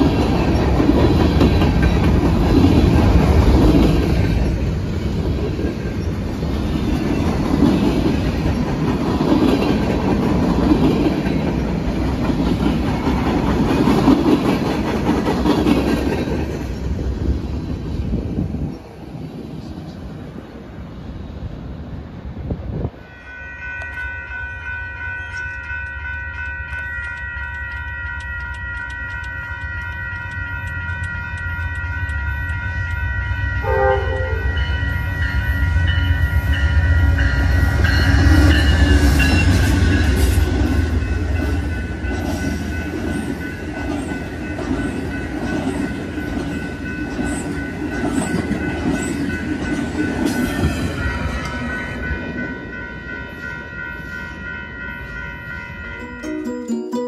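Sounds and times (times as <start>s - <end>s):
train rumble and wheel clicks: 0.0s - 23.1s, 23.7s - 56.8s
crossing bells ringing: 23.0s - 57.0s
train horn blast: 33.3s - 34.7s.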